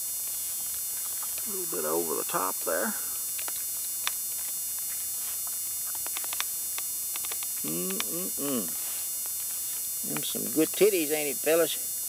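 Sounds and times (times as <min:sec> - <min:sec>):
steady hum: 0:00.0 - 0:12.0
puppies suckling clicks and smacks: 0:00.6 - 0:01.5, 0:03.3 - 0:08.1.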